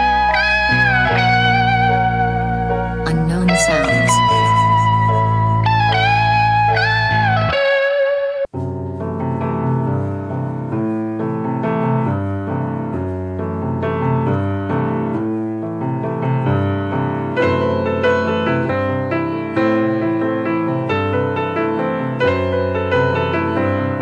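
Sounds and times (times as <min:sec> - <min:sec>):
piano chords: 0:00.0 - 0:24.0.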